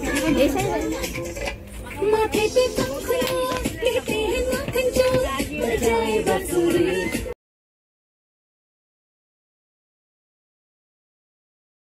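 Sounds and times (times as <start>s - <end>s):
voices singing together: 0.0s - 7.4s.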